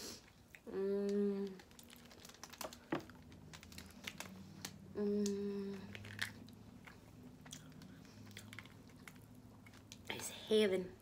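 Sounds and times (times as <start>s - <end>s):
person humming: 0.7s - 1.6s, 4.9s - 5.9s
crab shell cracking: 1.6s - 6.6s
close-up chewing: 5.8s - 10.1s.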